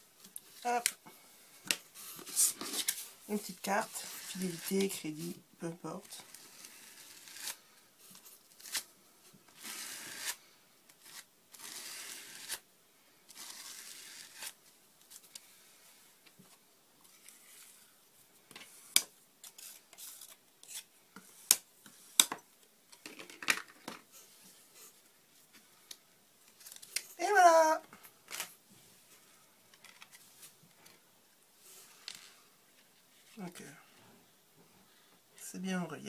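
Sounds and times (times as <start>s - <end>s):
plastic card scraping paste: 3.8s - 5.0s, 11.0s - 12.6s.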